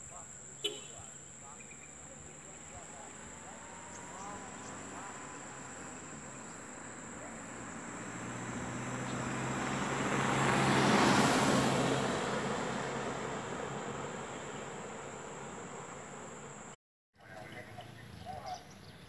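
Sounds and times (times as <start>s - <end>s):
vehicle passing by: 0.0s - 16.8s.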